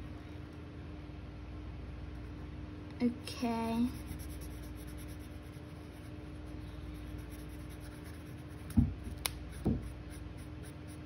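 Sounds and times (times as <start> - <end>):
marker rubbing on paper: 3.8 - 11.0.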